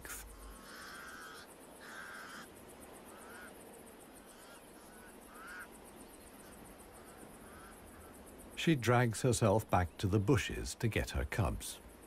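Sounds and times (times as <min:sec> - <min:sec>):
crows cawing: 0:00.0 - 0:08.4.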